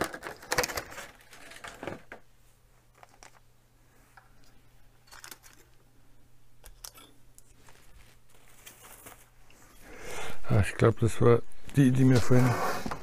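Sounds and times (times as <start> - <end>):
low steady hum: 0.0 - 12.3
small parts clicking and tapping: 2.9 - 3.5, 4.2 - 5.8, 6.6 - 7.6.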